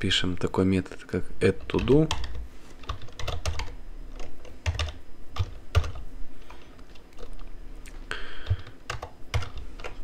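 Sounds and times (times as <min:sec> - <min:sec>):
typing on computer keyboard: 0:01.6 - 0:07.3, 0:08.4 - 0:10.0.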